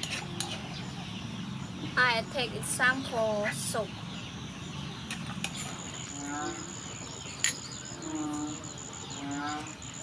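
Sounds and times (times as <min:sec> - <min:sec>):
insect trill: 0:05.4 - 0:10.0.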